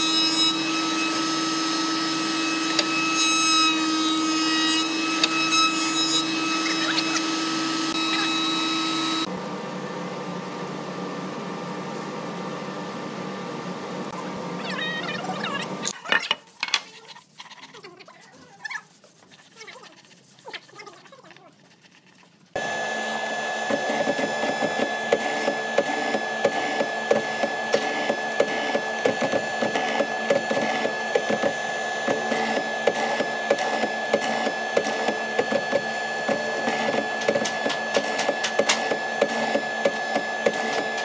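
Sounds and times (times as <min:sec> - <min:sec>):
mortising machine motor whine: 0:00.0 - 0:09.3, 0:22.6 - 0:41.0.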